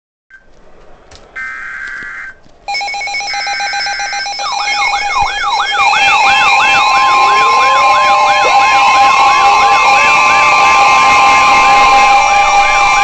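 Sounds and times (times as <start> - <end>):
electronic siren yelping: 1.4 - 13.0
steady warning tone: 1.4 - 13.0
weather alert radio tones: 1.4 - 13.0.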